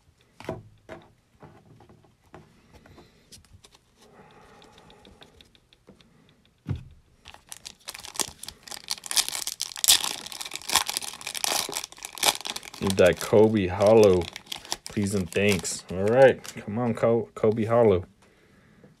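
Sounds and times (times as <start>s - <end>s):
foil wrapper crinkling and tearing: 7.3s - 16.6s.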